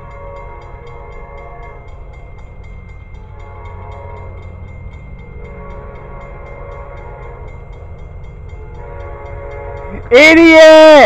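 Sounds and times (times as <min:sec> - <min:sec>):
train air horn blasts: 0:00.0 - 0:01.9, 0:03.3 - 0:04.4, 0:05.4 - 0:07.6, 0:08.6 - 0:10.9.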